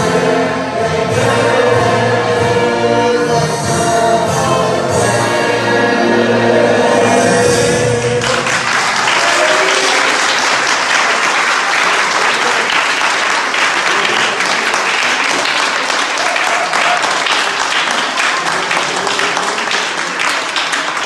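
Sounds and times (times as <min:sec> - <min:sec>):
instrumental accompaniment: 0:00.0 - 0:08.6
choir singing: 0:00.0 - 0:09.5
audience applause: 0:08.0 - 0:21.0.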